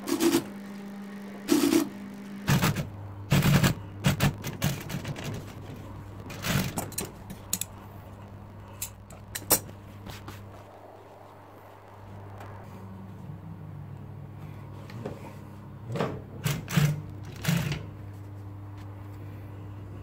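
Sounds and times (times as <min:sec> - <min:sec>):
sewing machine stitching: 0:00.0 - 0:05.6, 0:06.3 - 0:07.1, 0:16.4 - 0:17.9.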